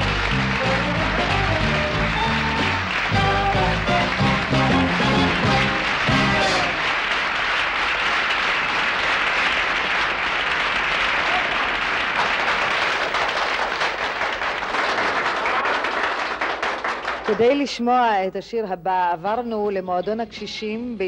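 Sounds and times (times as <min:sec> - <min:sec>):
song ending: 0:00.0 - 0:06.9
audience applauding: 0:00.0 - 0:17.6.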